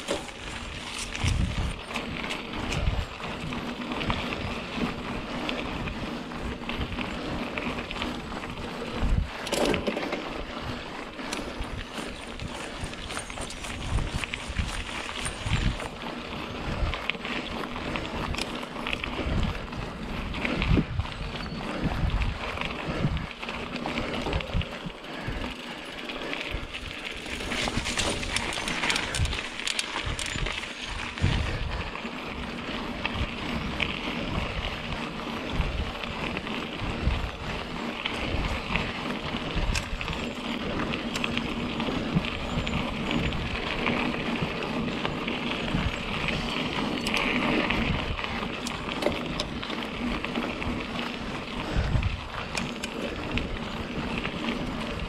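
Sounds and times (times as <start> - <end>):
bike knocks and rattles: 0.0 - 5.0, 8.8 - 10.4, 11.2 - 16.4, 26.6 - 31.6
bike tyres rolling on dirt: 0.0 - 55.0.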